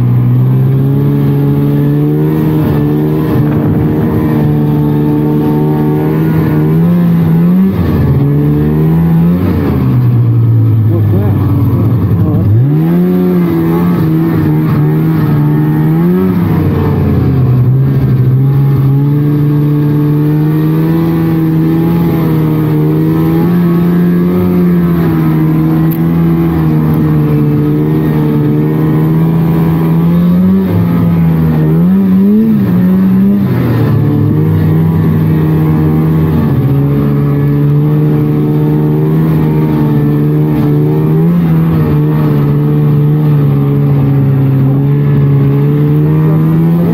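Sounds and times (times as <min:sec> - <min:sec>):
snowmobile engine running: 0:00.0 - 0:46.9.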